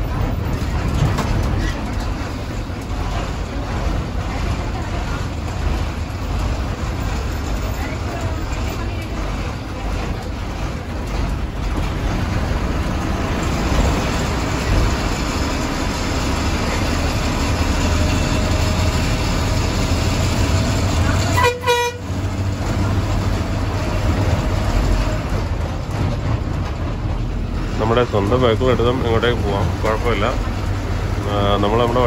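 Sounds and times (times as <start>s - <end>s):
bus engine and road noise: 0.0s - 32.0s
vehicle horn toot: 21.3s - 22.1s.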